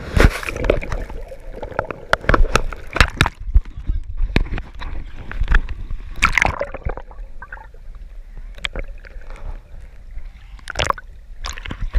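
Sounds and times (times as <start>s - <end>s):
water splashing and gurgling: 0.0s - 11.9s
low muffled rumble: 0.5s - 11.9s.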